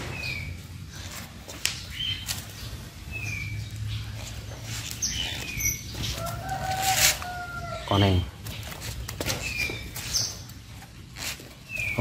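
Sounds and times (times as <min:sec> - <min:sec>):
rooster crowing: 0:06.0 - 0:08.0.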